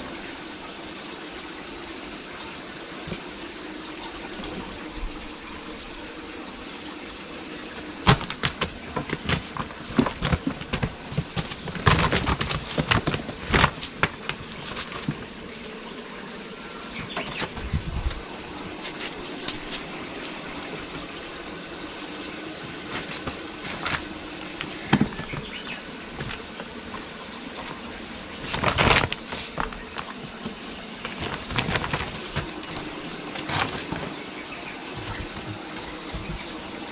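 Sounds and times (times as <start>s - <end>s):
steady background noise: 0.0s - 36.9s
kittens scrabbling on boards: 8.0s - 15.3s, 22.9s - 27.8s, 28.4s - 34.2s.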